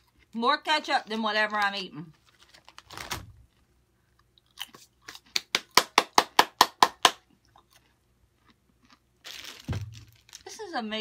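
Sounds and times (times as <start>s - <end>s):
chewing crunchy chip: 2.2s - 5.8s, 7.2s - 10.6s.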